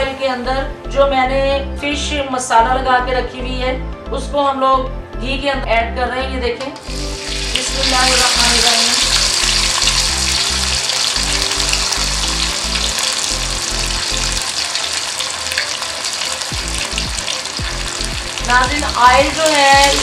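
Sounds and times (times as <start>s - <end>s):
low background music: 0.0s - 20.0s
fish sizzling in hot oil: 6.8s - 20.0s.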